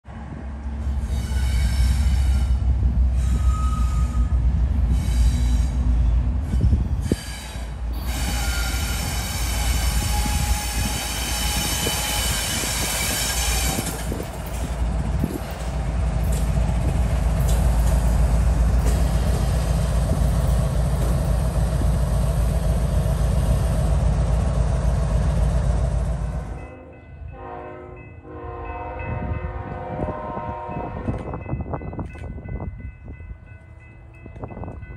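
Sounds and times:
locomotive engines rumbling: 0.1s - 34.9s
faint distant train horn: 1.0s - 12.6s, 26.4s - 31.4s
locomotive air horn blasts: 1.1s - 5.8s, 26.7s - 31.2s.

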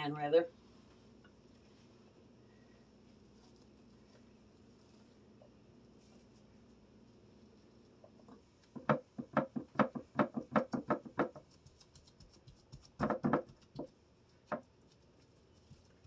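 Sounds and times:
hand patting meat mixture: 8.0s - 16.0s.

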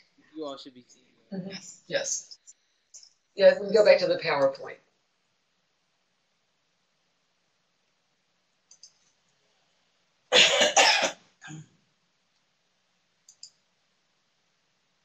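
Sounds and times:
person coughing: 10.3s - 11.2s.

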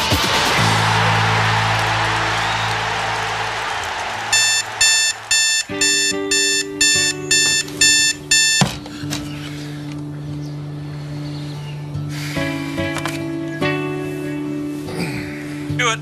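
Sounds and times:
alarm clock beeping: 4.3s - 8.8s.

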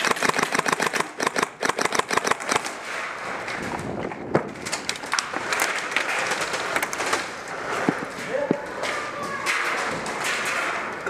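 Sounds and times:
airsoft guns firing: 0.0s - 3.1s.

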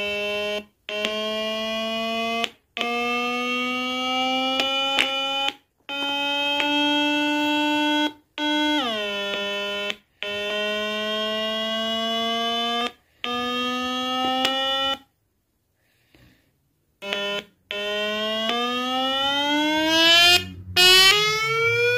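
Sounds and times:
buzzy electronic tone from loudspeaker: 0.0s - 15.1s, 17.0s - 21.9s.

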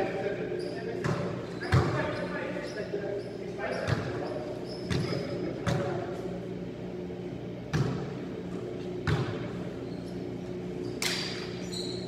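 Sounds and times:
basketballs bouncing on a court: 0.9s - 2.2s, 3.7s - 6.0s, 7.7s - 8.1s, 9.0s - 9.5s.

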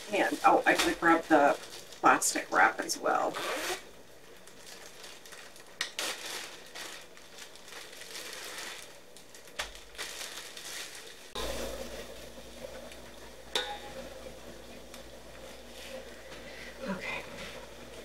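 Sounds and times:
plastic bag crinkling: 0.0s - 11.6s
steady low hum: 11.3s - 18.0s.

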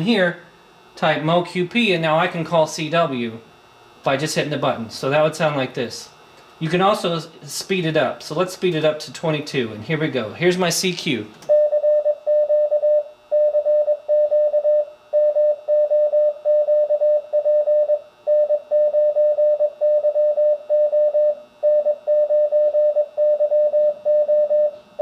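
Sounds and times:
morse code beeps: 11.5s - 24.7s.

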